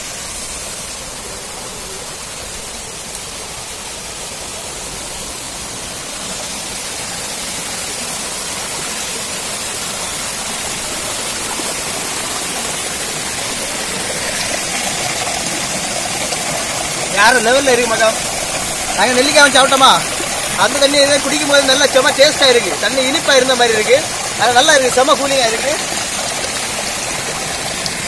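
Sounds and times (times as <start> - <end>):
stream running over rocks: 0.0 - 28.0.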